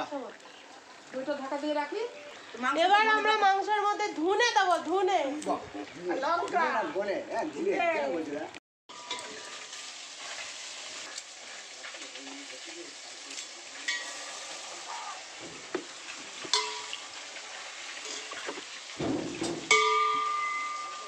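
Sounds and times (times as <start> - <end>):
metal clinks of utensils: 16.5 - 17.0, 19.4 - 21.0.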